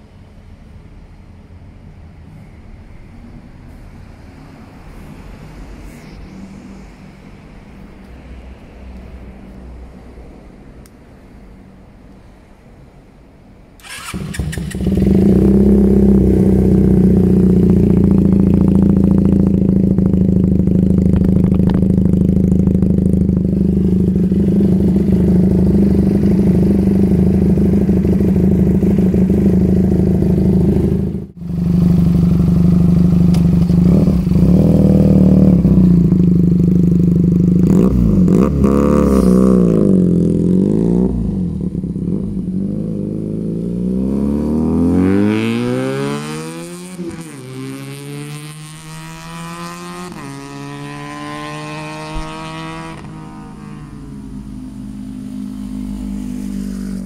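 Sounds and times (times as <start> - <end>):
motorcycle engine idling and revving: 13.8 - 57.0.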